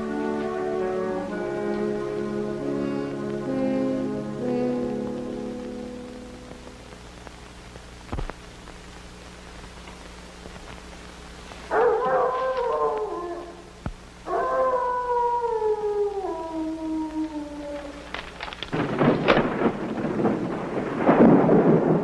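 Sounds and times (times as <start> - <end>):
low steady hum: 0.0 - 22.0
dog howling: 11.7 - 18.3.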